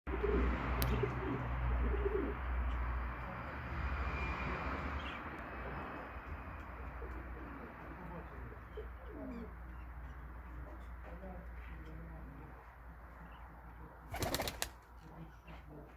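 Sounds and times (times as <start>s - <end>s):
pigeons cooing: 0.1s - 2.8s, 6.8s - 9.6s.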